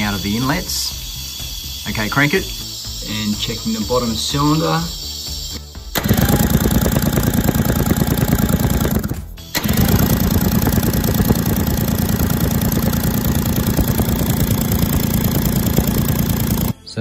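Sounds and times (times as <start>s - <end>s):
outboard motor cranking chatter: 6.0s - 16.8s.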